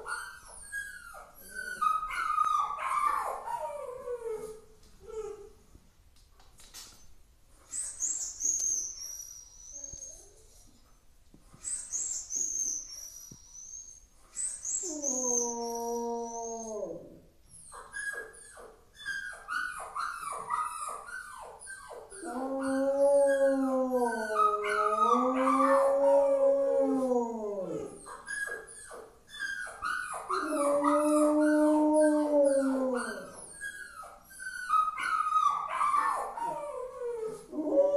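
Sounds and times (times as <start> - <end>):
dog yelping: 17.6 - 26.4, 27.6 - 37.4
dog howling: 22.2 - 28.0, 30.2 - 33.5.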